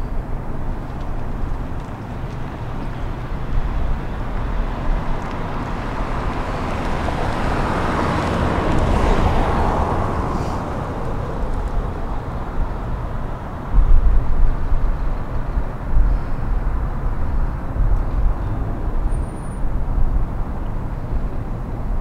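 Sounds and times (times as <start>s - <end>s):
low steady traffic rumble: 0.0s - 22.0s
car passing by: 5.2s - 12.4s.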